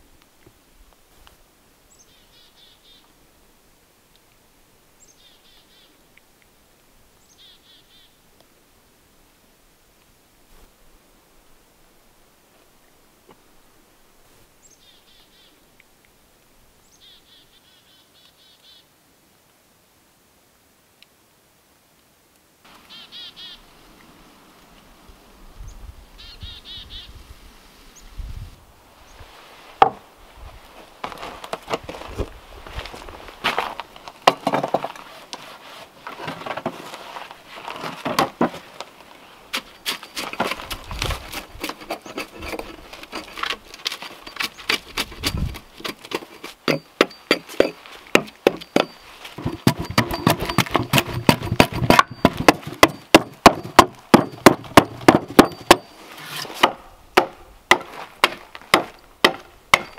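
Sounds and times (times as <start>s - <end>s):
axe scraping wood: 33.4s - 38.9s, 39.5s - 59.9s
axe chopping wood: 34.2s - 34.9s, 44.7s - 59.9s.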